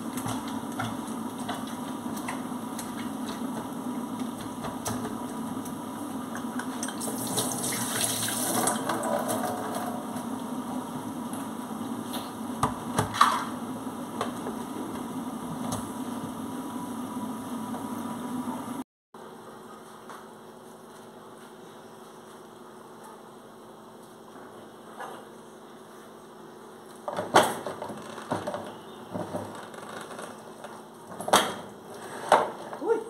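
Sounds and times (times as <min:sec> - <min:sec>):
tap water running into sink: 0:06.4 - 0:09.1
steady low hum: 0:08.8 - 0:27.0.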